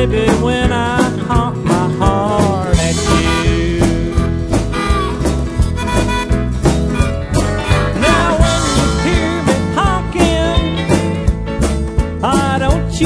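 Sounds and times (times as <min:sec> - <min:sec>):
bass and guitar: 0:00.0 - 0:13.0
drums keeping a beat: 0:00.0 - 0:13.0
lead instrument bending notes: 0:02.9 - 0:11.2.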